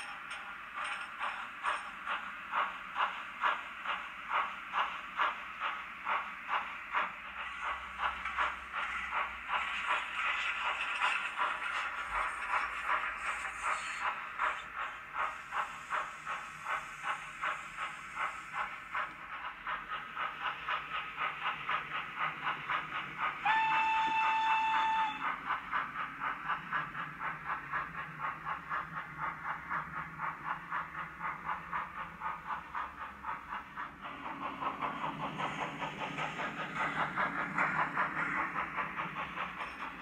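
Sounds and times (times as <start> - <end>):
steam locomotive exhaust chuffs: 0.0 - 40.0
train whistle blast: 23.4 - 25.2.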